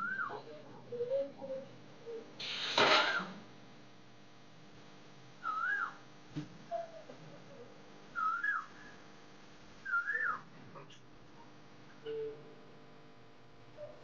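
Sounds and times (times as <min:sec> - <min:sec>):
high whistle-like call: 0:05.4 - 0:06.0, 0:08.2 - 0:08.7, 0:09.9 - 0:10.4.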